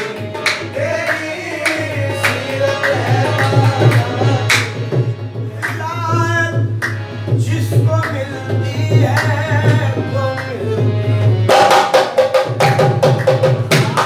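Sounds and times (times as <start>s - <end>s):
person singing devotional song: 0.0s - 4.9s
tabla drum strokes: 11.5s - 14.0s.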